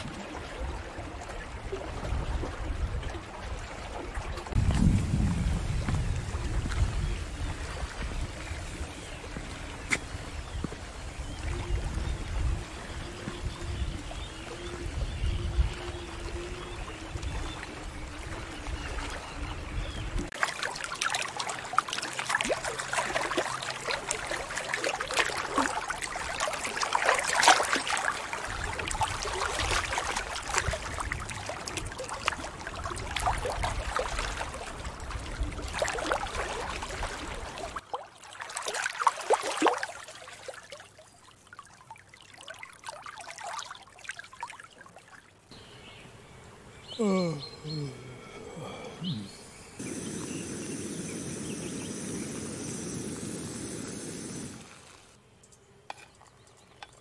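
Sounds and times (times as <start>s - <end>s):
waves lapping against rocks: 0.0s - 45.3s
water trickling: 0.0s - 45.8s.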